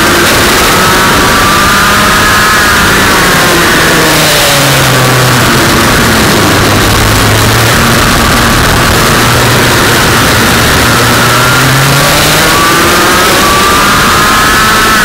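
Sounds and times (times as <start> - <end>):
constant loud hiss: 0.0 - 15.0
kart engine revving: 0.0 - 15.0.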